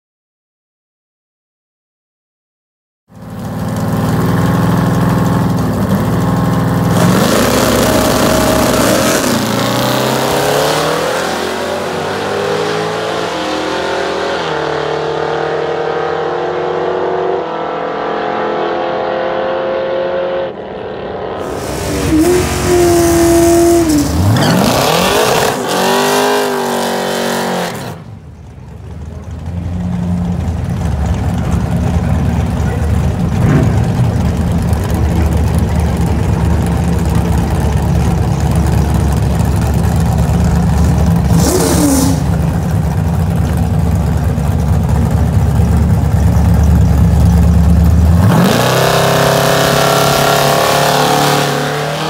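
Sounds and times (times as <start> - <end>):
engine idling: 3.1 - 10.2, 28.0 - 48.6
car engine accelerating: 3.1 - 52.0
engine revving: 3.3 - 28.2, 29.8 - 52.0.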